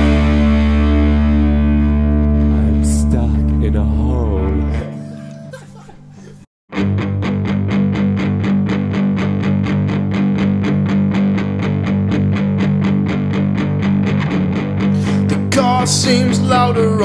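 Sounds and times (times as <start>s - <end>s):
punk rock chord ringing: 0.0s - 4.8s
bass guitar: 0.0s - 5.5s, 6.7s - 17.0s
distorted electric guitar picking: 0.0s - 5.6s, 6.7s - 17.0s.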